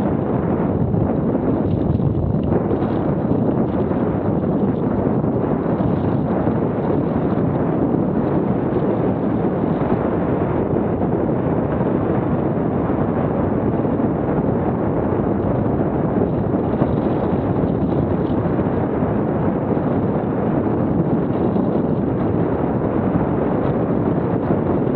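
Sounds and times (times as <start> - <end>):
wind rush on microphone: 0.0 - 24.9
bike tyres rumbling on dirt: 0.8 - 9.7, 14.8 - 24.6.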